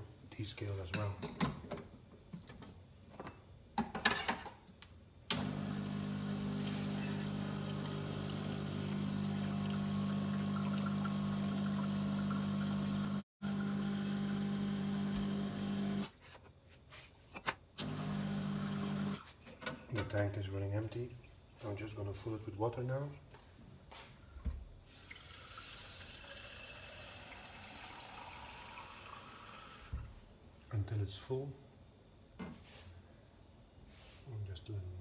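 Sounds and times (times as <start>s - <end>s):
espresso machine pump humming: 5.3s - 16.0s, 17.8s - 19.2s.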